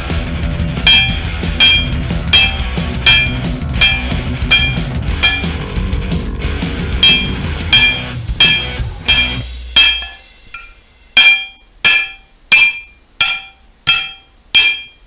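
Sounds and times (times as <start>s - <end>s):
background music: 0.0s - 11.5s
hammer striking ringing anvil: 0.8s - 5.8s, 6.7s - 15.0s.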